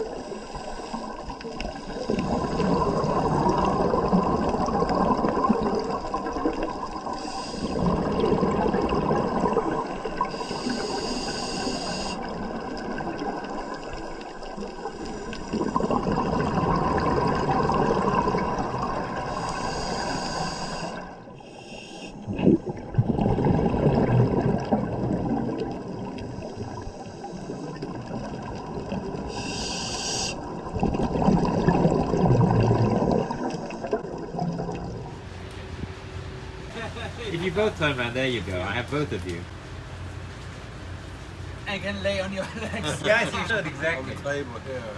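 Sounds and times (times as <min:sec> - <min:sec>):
exhaled bubbles underwater: 0:00.0 - 0:21.4, 0:22.2 - 0:35.3
regulator inhalation hiss: 0:00.1 - 0:02.1, 0:07.1 - 0:07.9, 0:10.3 - 0:12.3, 0:19.3 - 0:22.3, 0:29.3 - 0:30.4.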